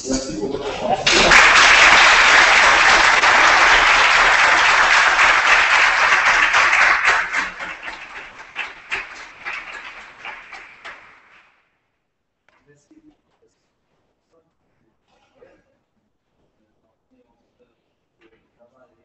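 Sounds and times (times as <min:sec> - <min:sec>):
audience applauding: 0:00.8 - 0:11.5.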